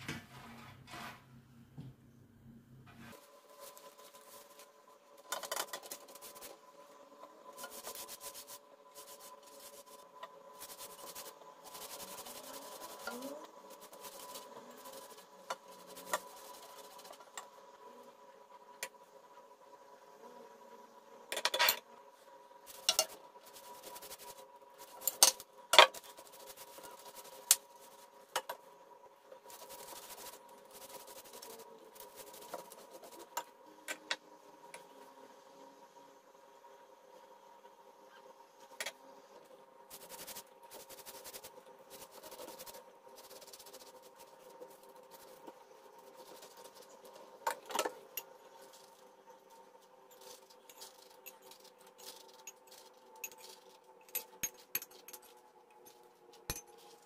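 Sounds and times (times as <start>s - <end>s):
faint steady hum: 0.0s - 57.0s
paper and pastry rustling: 3.1s - 6.6s, 7.6s - 17.2s.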